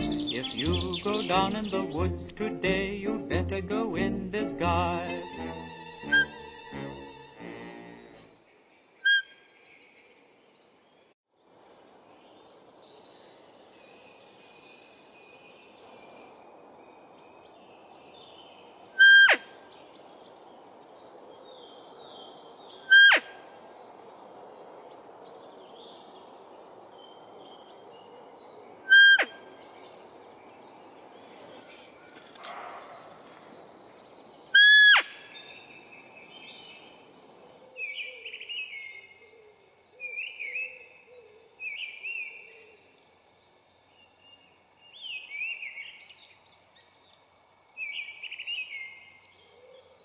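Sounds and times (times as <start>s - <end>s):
birds singing: 0.0s - 11.1s, 12.2s - 50.0s
deer call squeaks: 5.6s - 6.7s, 19.0s - 19.4s, 22.9s - 23.3s, 28.9s - 29.4s, 34.6s - 35.1s.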